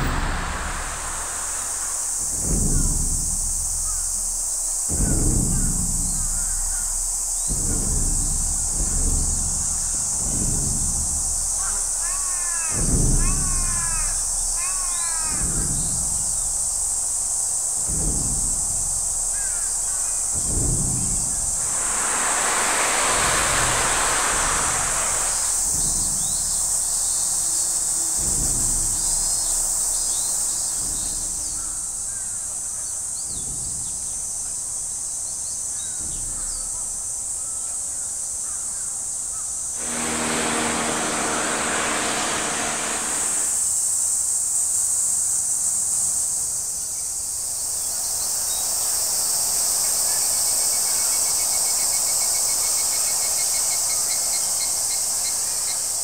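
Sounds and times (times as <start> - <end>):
broad rush of noise: 0.0 - 32.2, 39.8 - 44.1
insects droning: 0.0 - 56.0
faint bird chirps: 0.1 - 16.6.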